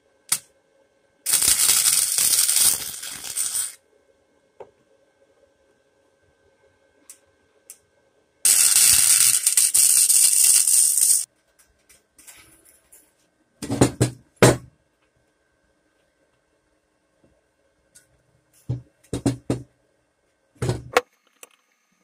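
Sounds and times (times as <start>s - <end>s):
welder arc crackling: 1.3s - 3.8s, 8.5s - 11.3s.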